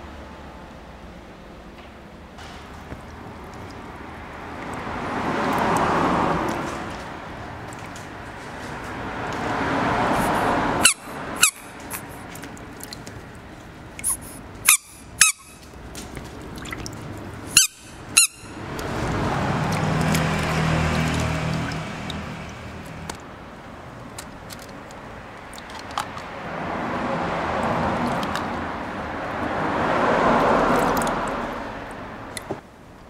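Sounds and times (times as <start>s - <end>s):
water sloshing and swishing: 2.4s - 32.7s
short high squeaks: 10.8s - 12.2s, 14.0s - 15.7s, 17.5s - 18.6s.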